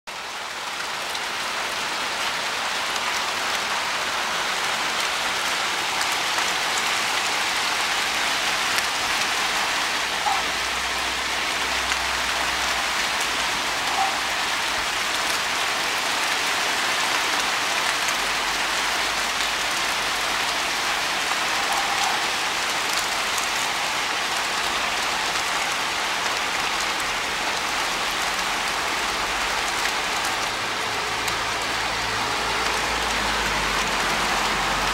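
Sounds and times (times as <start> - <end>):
heavy rain patter: 0.1 - 34.9
hailstones ticking on surfaces: 0.4 - 34.9.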